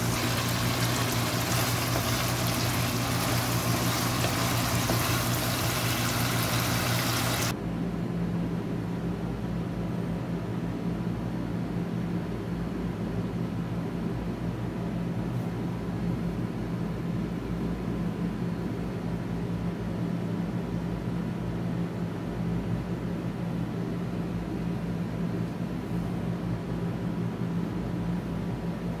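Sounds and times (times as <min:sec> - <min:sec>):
sauce sizzling in a wok: 0:00.0 - 0:07.5
steady low hum: 0:00.0 - 0:29.0.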